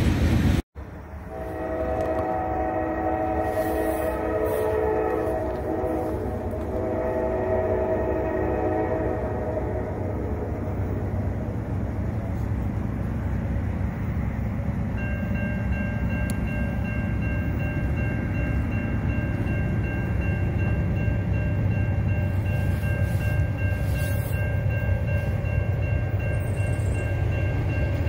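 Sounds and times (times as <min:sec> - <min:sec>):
diesel locomotives rumbling: 0:00.0 - 0:28.0
high-pitched ringing tone: 0:14.0 - 0:28.0.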